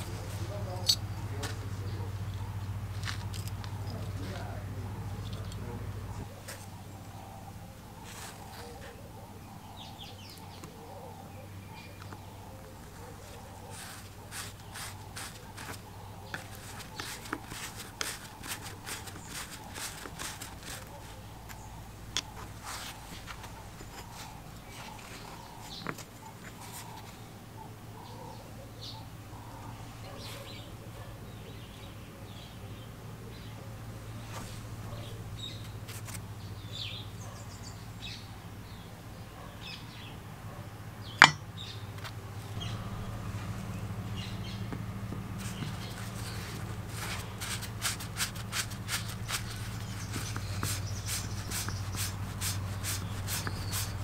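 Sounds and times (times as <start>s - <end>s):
steady low hum: 0.0s - 39.2s, 39.9s - 54.0s
light metal taps and clinks: 41.2s - 41.4s.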